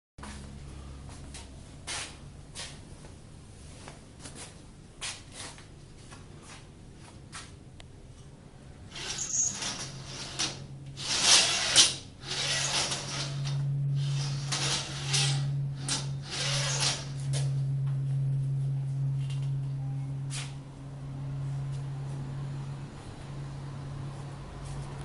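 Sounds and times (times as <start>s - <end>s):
low machine hum: 0.2s - 5.0s, 7.6s - 25.0s.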